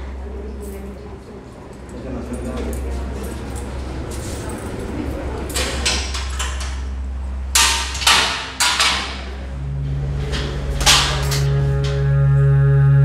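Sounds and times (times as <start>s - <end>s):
low musical drone: 0.0s - 13.0s
steady low hum: 0.0s - 13.0s
metal cell gate clanking: 2.4s - 12.2s.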